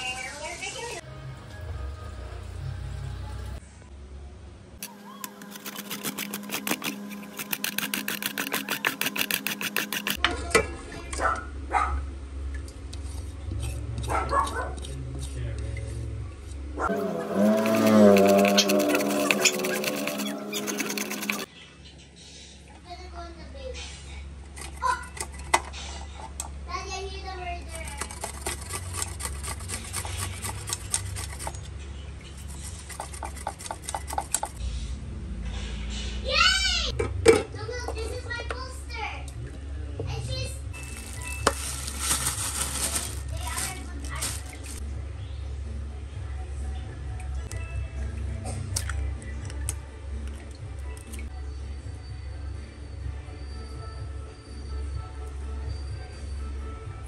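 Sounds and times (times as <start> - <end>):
carrot grating on metal grater: 4.8 - 10.2, 16.9 - 21.5, 27.7 - 31.6, 32.4 - 34.6.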